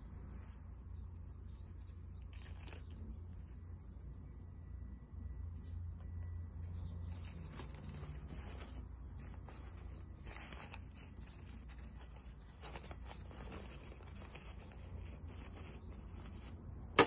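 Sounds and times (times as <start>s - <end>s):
fabric rustling and crinkling: 0.3s - 3.6s, 6.6s - 16.7s.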